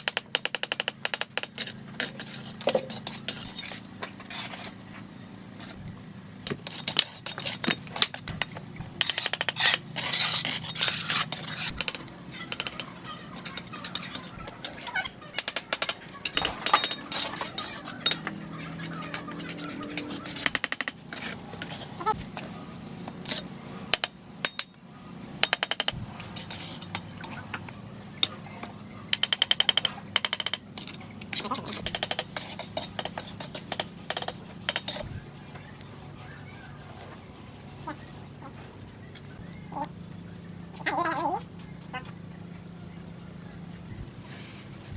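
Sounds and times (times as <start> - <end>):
trowel scraping mortar: 1.6 - 4.8, 6.5 - 8.4, 9.0 - 12.8, 13.4 - 22.0, 26.2 - 27.0
trowel knocking bricks: 15.4 - 18.3.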